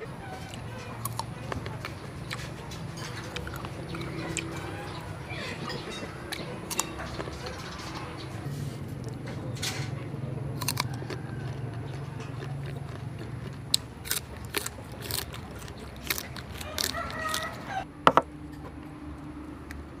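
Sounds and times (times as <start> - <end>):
crunchy chewing of mango: 0.0 - 17.9
chicken calling: 3.6 - 8.4, 14.8 - 17.9.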